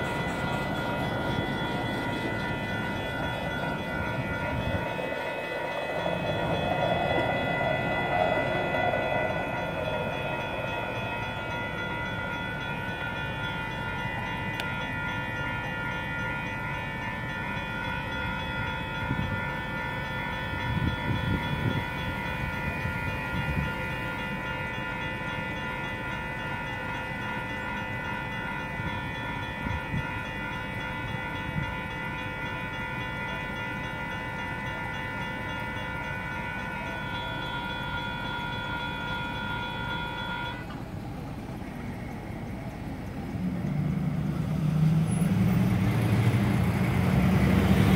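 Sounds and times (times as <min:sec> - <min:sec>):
road traffic engines rumbling: 0:00.0 - 0:16.0, 0:36.0 - 0:47.9
railroad crossing bell ringing: 0:00.0 - 0:47.9.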